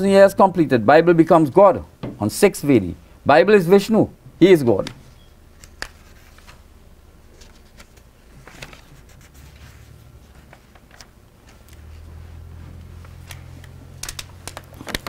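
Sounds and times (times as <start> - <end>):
steady low hum: 0.0 - 15.0
paper sheet rustling and ticking: 5.6 - 6.6, 7.3 - 12.0, 13.0 - 15.0.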